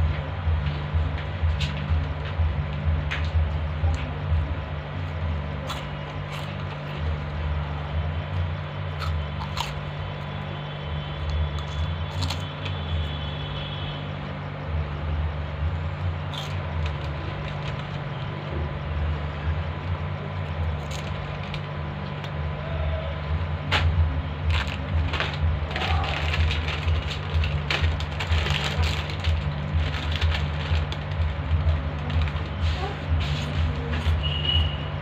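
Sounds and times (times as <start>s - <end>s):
steady low hum: 0.0s - 35.0s
person chewing crunchy chips: 5.1s - 10.3s, 11.2s - 13.1s, 16.1s - 18.3s, 20.4s - 22.4s, 24.4s - 33.7s.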